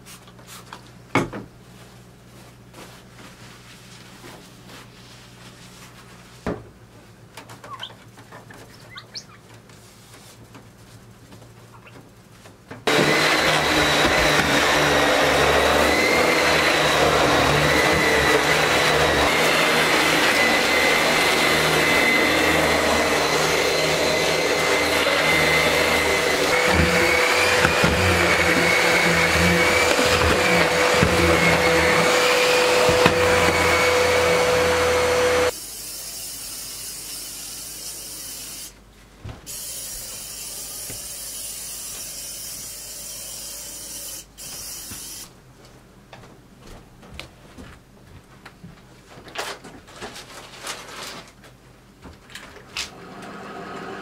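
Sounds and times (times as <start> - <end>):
electric fan motor whining: 12.9 - 35.5.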